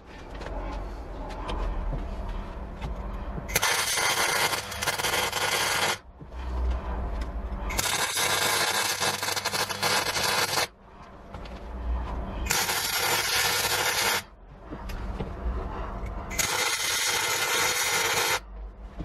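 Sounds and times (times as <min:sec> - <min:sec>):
low hum: 0:00.0 - 0:19.0
welding arc crackling: 0:03.5 - 0:06.0, 0:07.7 - 0:10.7, 0:12.5 - 0:14.3, 0:16.3 - 0:18.4.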